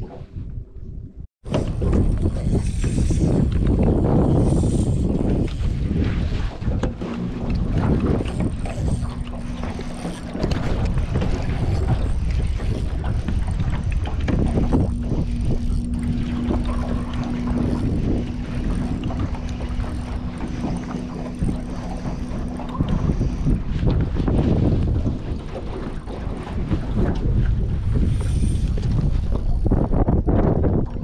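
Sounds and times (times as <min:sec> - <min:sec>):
wind rumbling on microphone: 0:00.0 - 0:31.0
steady low hum: 0:06.9 - 0:25.7.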